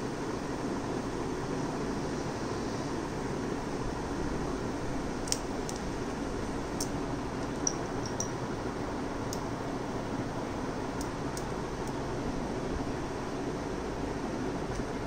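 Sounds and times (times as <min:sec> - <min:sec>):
fan-like hiss: 0:00.0 - 0:15.0.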